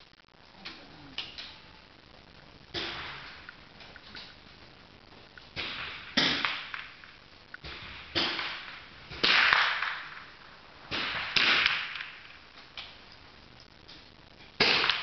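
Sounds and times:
rifle shots with echo: 2.7s - 3.5s, 5.6s - 12.4s, 14.6s - 15.0s.

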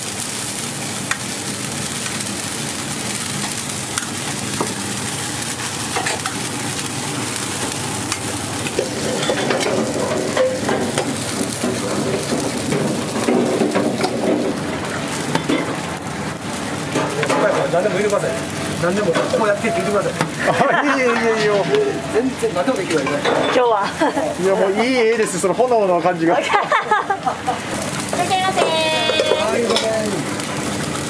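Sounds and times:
food sizzling in a pan: 0.0s - 31.0s
utensils clicking against pan: 5.6s - 6.4s, 7.4s - 14.5s, 27.8s - 30.4s.

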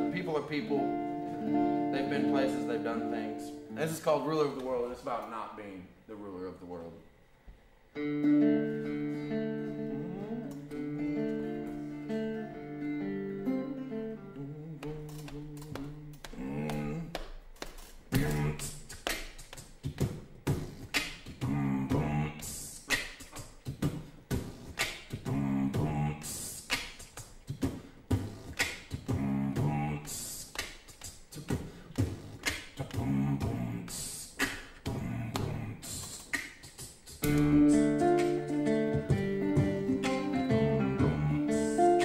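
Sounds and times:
beatboxing into a microphone: 9.6s - 12.6s, 13.8s - 42.0s
low vocal phrase: 9.8s - 10.8s, 14.2s - 17.2s, 18.1s - 18.8s, 21.4s - 22.6s, 25.3s - 26.4s, 29.1s - 30.2s, 32.8s - 34.0s, 34.9s - 36.0s.

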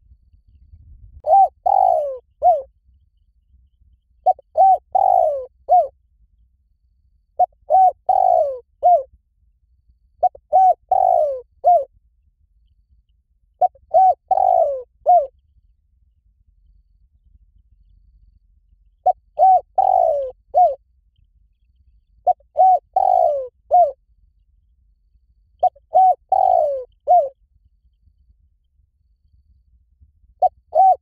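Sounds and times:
dove cooing: 1.2s - 2.7s, 4.2s - 5.9s, 7.4s - 9.1s, 10.2s - 11.9s, 13.6s - 15.3s, 19.0s - 20.8s, 22.2s - 24.0s, 25.6s - 27.4s, 30.4s - 31.0s.

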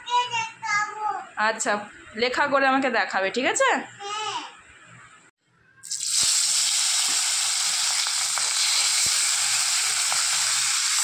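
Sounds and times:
fish frying in hot oil: 5.8s - 11.0s.

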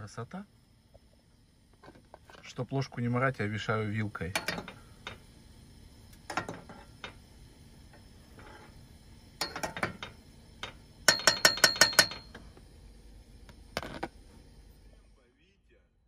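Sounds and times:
fork clinking against steel pot: 4.3s - 5.2s.

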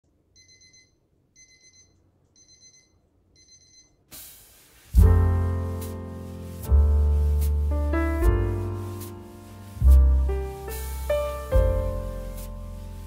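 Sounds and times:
electronic alarm beeping: 0.4s - 4.0s
loud music with piano: 5.0s - 13.0s.

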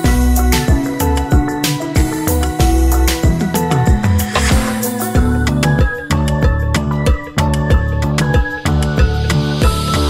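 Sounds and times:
regular drum beat: 2.6s - 6.0s.

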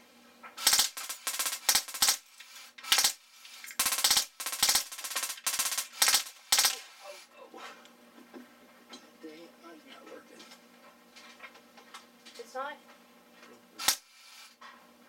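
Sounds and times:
bb gun firing rapid bursts: 0.6s - 6.9s, 13.8s - 14.6s.

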